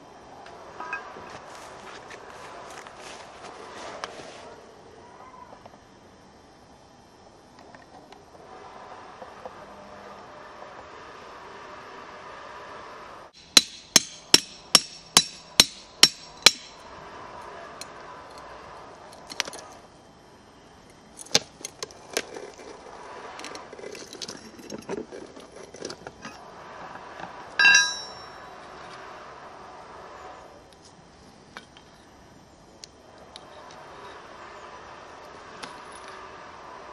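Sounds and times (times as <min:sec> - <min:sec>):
handling clicks and scrapes: 0:00.8 - 0:04.6, 0:20.9 - 0:29.0, 0:33.1 - 0:34.3
hammer striking steel wedges: 0:13.4 - 0:16.8, 0:27.6 - 0:28.5
metal tool knocking on stone: 0:27.6 - 0:28.3.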